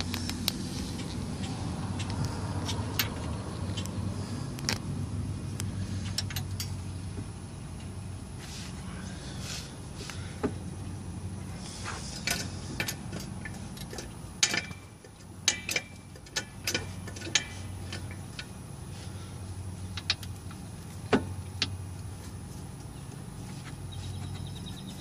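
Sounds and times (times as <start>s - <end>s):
steady low hum: 0.0s - 25.0s
light metallic clicks and clinks: 12.2s - 18.6s.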